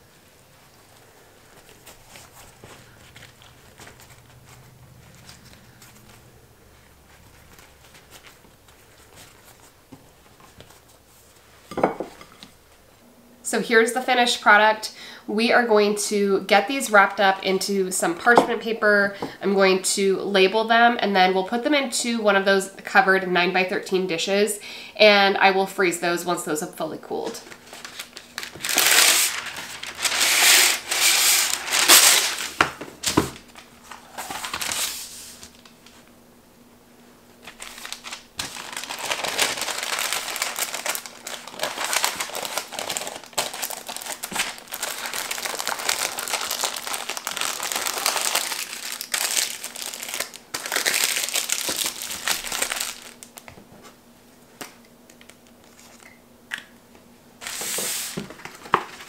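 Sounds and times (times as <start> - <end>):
parchment paper crinkling: 0.6 - 11.4, 27.2 - 36.0, 37.4 - 53.6, 57.4 - 59.0.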